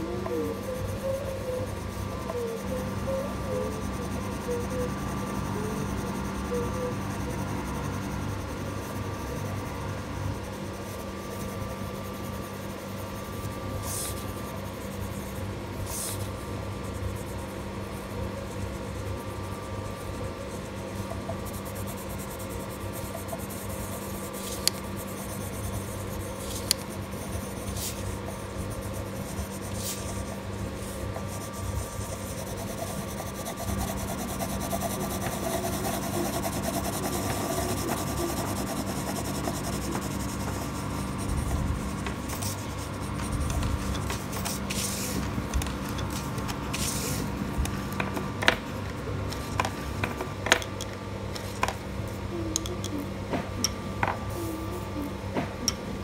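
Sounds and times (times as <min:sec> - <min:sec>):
steady low hum: 0:00.0 - 0:56.0
pencil scratching on paper: 0:10.4 - 0:45.3, 0:46.0 - 0:47.3.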